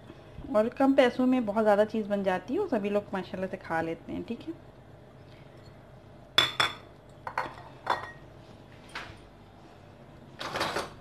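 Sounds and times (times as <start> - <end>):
bowls knocking on stone countertop: 6.4 - 8.2
bowls clinking: 6.4 - 8.3.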